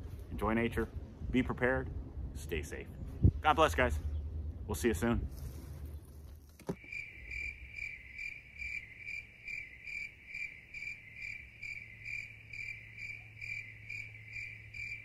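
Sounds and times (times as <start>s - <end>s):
steady low hum: 0.0s - 6.5s
crickets chirping: 6.7s - 15.0s.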